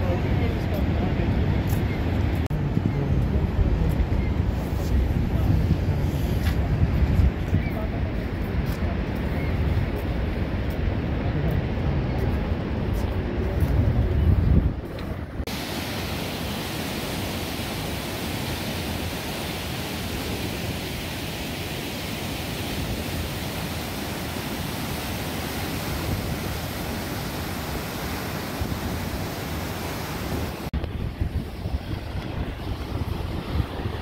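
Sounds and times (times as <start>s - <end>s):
wind buffeting microphone: 0.0s - 15.5s, 30.1s - 34.0s
river rapids rushing: 15.5s - 30.7s.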